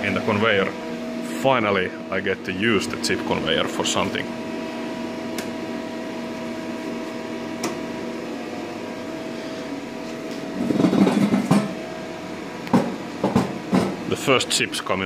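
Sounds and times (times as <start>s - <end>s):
conveyor motor and gear hum: 0.0s - 15.0s.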